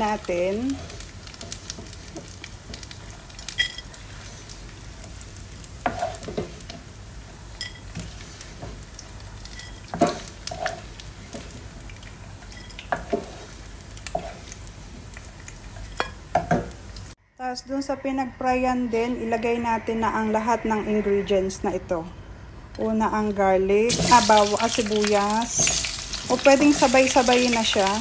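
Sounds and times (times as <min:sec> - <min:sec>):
hot oil sizzling in a frying pan: 0:00.0 - 0:17.2, 0:23.9 - 0:28.0
wooden spoon knocking and scraping pan: 0:05.8 - 0:06.6, 0:09.6 - 0:10.8, 0:12.9 - 0:13.5.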